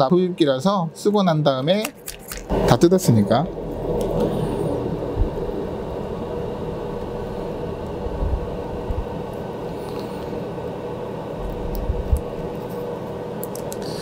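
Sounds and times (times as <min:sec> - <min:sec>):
fume extractor fan hum: 0:00.0 - 0:14.0.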